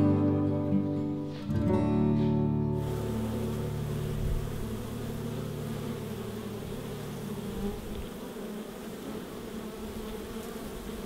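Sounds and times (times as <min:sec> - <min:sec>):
bees buzzing: 0:02.7 - 0:11.0.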